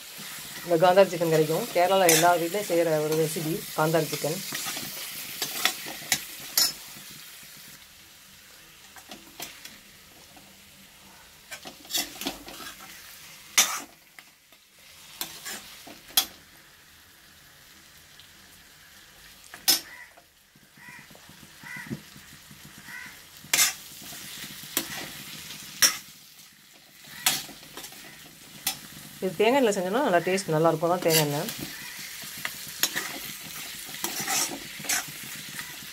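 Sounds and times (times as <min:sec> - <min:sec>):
food sizzling in oil: 0:00.0 - 0:35.9
metal spatula scraping pan: 0:00.1 - 0:07.2, 0:11.5 - 0:14.0, 0:15.1 - 0:16.4, 0:23.4 - 0:26.1, 0:26.7 - 0:29.2, 0:30.3 - 0:35.9.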